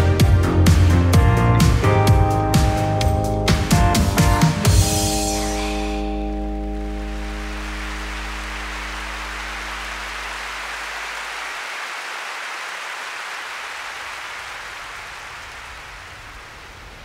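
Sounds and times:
low synth notes: 0:04.9 - 0:11.5
rain-like hiss: 0:05.4 - 0:17.0.

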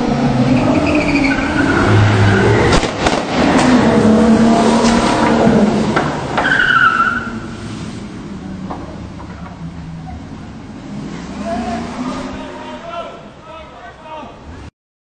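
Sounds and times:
car engine revving: 0:00.0 - 0:13.4
tyres squealing on wet cobbles: 0:00.5 - 0:02.6, 0:06.4 - 0:07.6.

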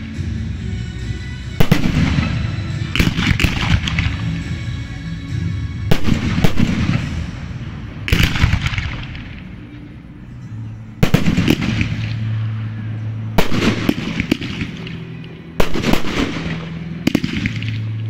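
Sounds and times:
fireworks bursting with rumble: 0:01.6 - 0:04.6, 0:05.7 - 0:09.5, 0:11.0 - 0:12.4, 0:13.4 - 0:15.0, 0:15.6 - 0:18.0.

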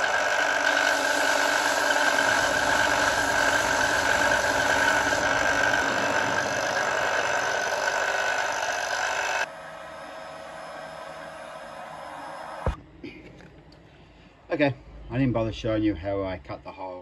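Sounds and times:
belt sander running: 0:00.0 - 0:12.7.

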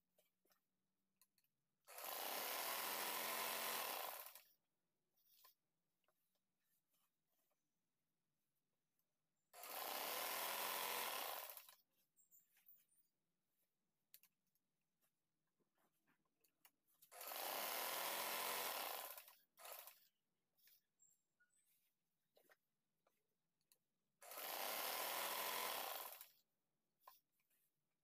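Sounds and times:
sewing machine running: 0:01.9 - 0:04.4, 0:09.5 - 0:11.8, 0:17.1 - 0:20.0, 0:24.2 - 0:26.3
small clicks: 0:14.1 - 0:14.4.

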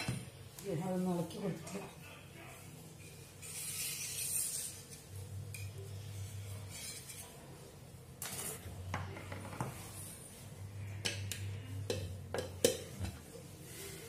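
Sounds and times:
metal utensil scraping metal pan: 0:03.4 - 0:07.4.

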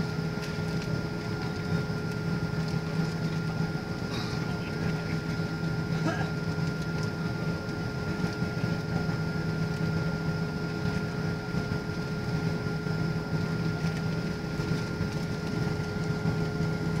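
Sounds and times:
faint steady whine: 0:00.0 - 0:17.0.

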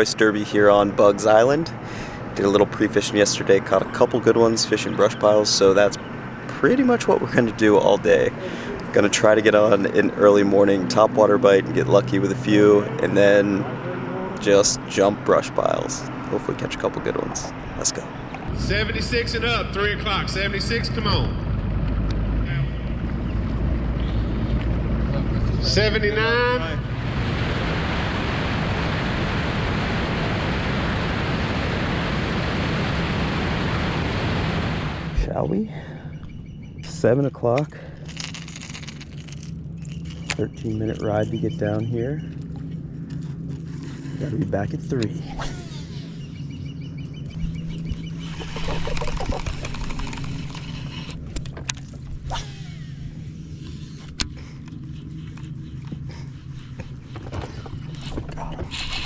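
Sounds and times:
wind and water rushing: 0:26.0 - 0:35.3
electric motor hum: 0:45.4 - 0:59.0
fishing line whoosh: 0:52.2 - 0:54.2.

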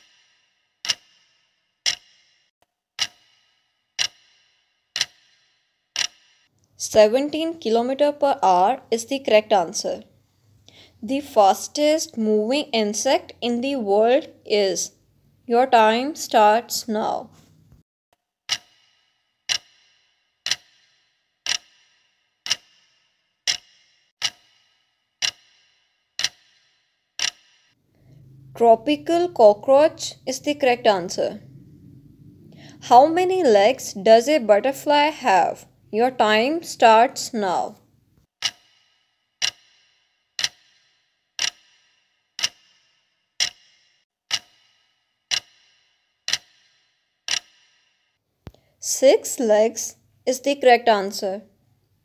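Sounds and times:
clock ticks with bright ring: 0:00.0 - 0:10.1, 0:18.5 - 0:31.6, 0:38.4 - 0:48.6.

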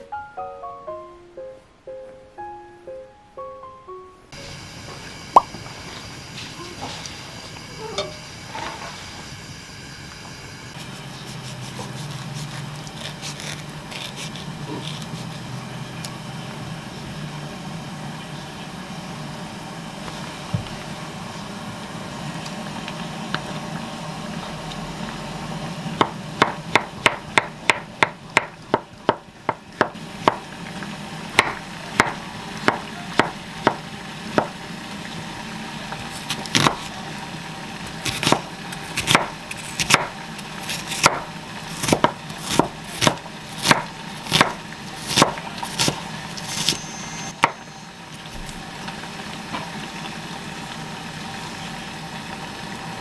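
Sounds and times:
knife chopping on wooden board: 0:26.0 - 0:30.5, 0:31.4 - 0:33.8, 0:36.3 - 0:36.9, 0:38.0 - 0:46.8.

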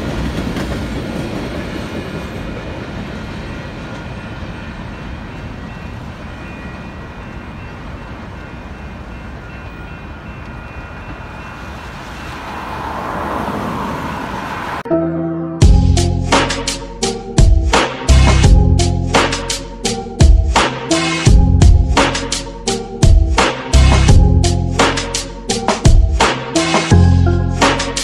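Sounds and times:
freight train wheels rumbling: 0:00.0 - 0:14.8, 0:15.6 - 0:27.0
road traffic noise: 0:07.8 - 0:28.0
music: 0:14.9 - 0:28.0.

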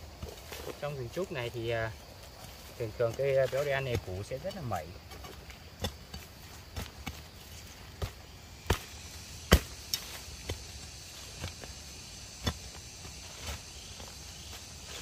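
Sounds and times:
metal tool chopping into soil: 0:05.0 - 0:07.2, 0:08.0 - 0:11.8, 0:12.4 - 0:12.8.

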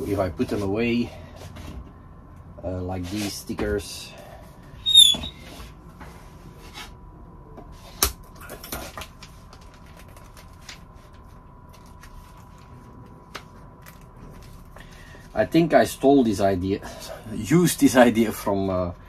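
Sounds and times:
paper and plastic rustling: 0:08.3 - 0:15.3.

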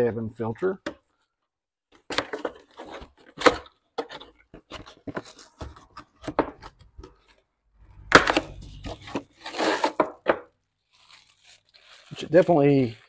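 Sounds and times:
cardboard box scraping and rustling: 0:08.2 - 0:10.1.

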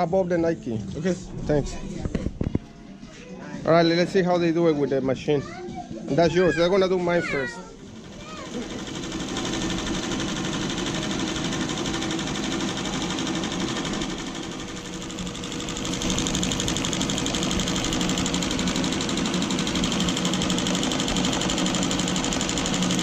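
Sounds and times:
embroidery machine chattering: 0:06.5 - 0:23.0.

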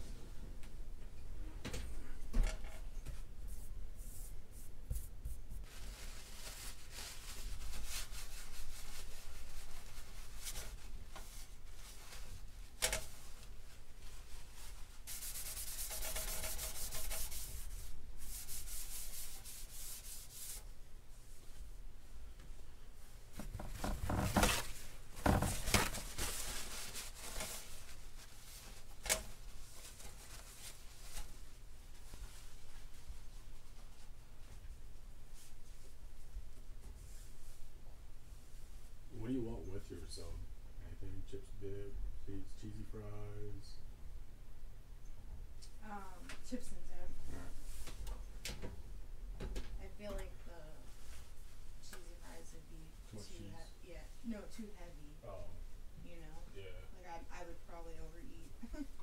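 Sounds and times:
paper towel rustling: 0:03.0 - 0:21.7, 0:23.3 - 0:37.6
hand scrubbing stovetop: 0:13.9 - 0:20.7.

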